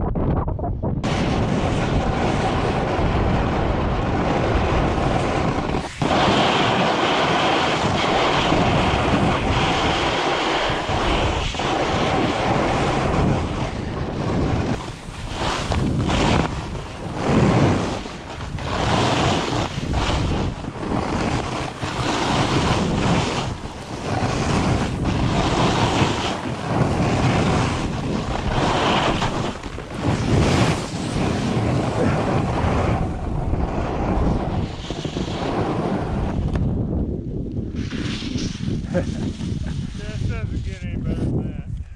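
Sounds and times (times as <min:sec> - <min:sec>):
wind buffeting microphone: 0:00.0 - 0:41.9
board edges scraping over snow: 0:01.1 - 0:36.7, 0:37.7 - 0:41.2.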